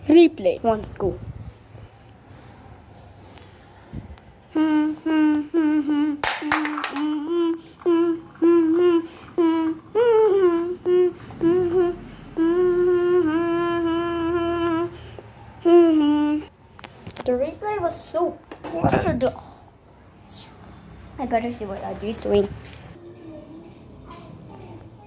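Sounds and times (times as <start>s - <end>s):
girl humming: 4.5s - 16.5s.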